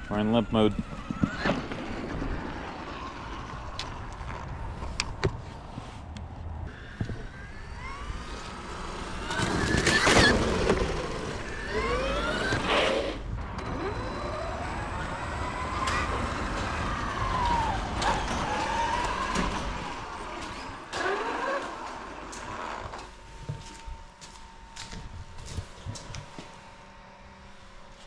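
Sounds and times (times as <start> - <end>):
electric motor whining: 0.0 - 4.7, 6.7 - 23.9.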